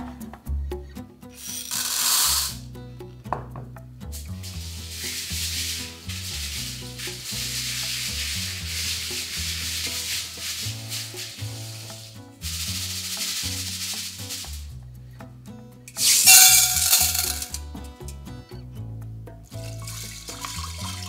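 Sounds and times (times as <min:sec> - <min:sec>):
soft background music: 0:00.0 - 0:21.0
beans spilling into metal strainer: 0:01.4 - 0:02.6, 0:04.2 - 0:14.8, 0:16.0 - 0:17.6, 0:19.6 - 0:21.0
hand rubbing beans: 0:01.4 - 0:02.7, 0:04.1 - 0:15.2, 0:15.9 - 0:17.6, 0:19.6 - 0:21.0
tap water running: 0:04.2 - 0:14.7, 0:16.0 - 0:17.6, 0:19.6 - 0:21.0.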